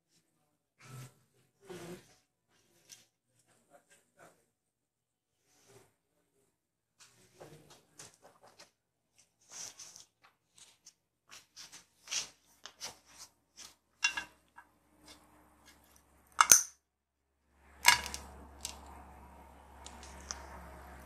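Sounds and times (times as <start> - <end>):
scraping shuffle: 7.0 - 14.4.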